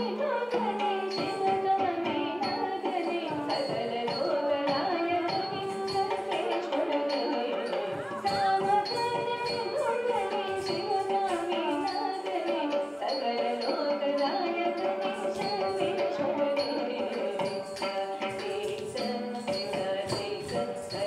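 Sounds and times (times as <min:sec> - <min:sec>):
drum strokes: 0:03.4 - 0:13.7.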